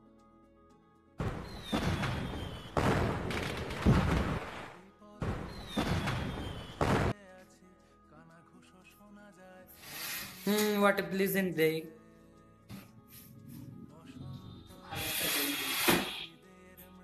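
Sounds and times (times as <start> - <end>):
soft background music: 0.0 - 17.0
firework bangs and crackling: 1.2 - 7.1
firework falling whistle: 1.3 - 3.5, 5.4 - 7.1.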